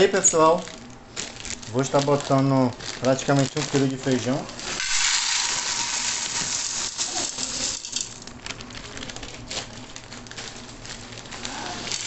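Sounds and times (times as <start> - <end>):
beans pouring into metal pot: 4.8 - 8.2.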